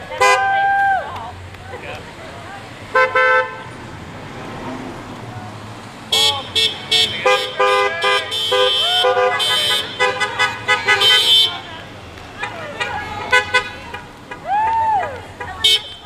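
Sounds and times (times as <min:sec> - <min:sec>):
car horns honking: 0:00.0 - 0:00.6, 0:02.9 - 0:03.8, 0:06.1 - 0:14.5, 0:15.3 - 0:16.0
cars driving slowly: 0:00.0 - 0:16.0.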